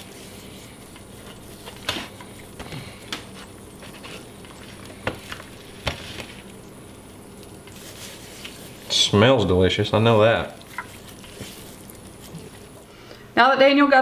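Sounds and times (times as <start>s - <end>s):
hands rubbing raw chicken: 0.0s - 12.9s.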